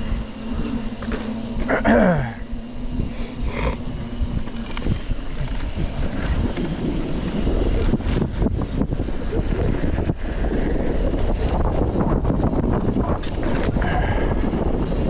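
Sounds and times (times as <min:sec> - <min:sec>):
bike tyres rumbling: 0:00.0 - 0:15.0
wind rushing over microphone: 0:00.0 - 0:15.0
bike clattering over bumps: 0:03.5 - 0:15.0.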